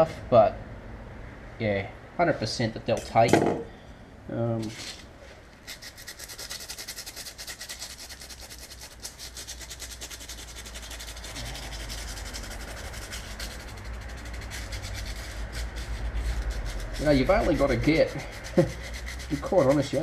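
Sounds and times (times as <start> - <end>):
abrasive paper rubbing metal: 5.6 - 20.0.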